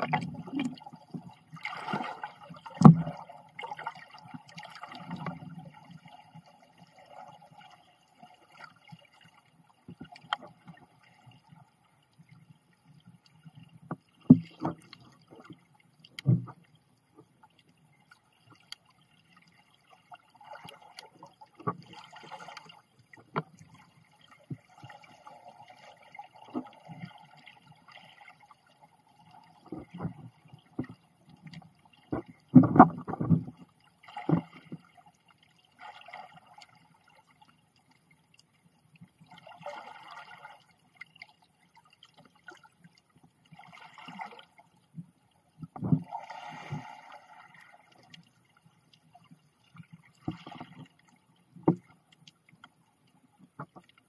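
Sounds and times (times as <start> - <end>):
underwater thuds and bumps: 0.0 - 3.2, 13.8 - 15.6, 16.2 - 16.6, 29.6 - 31.0, 32.1 - 34.9, 45.6 - 46.1.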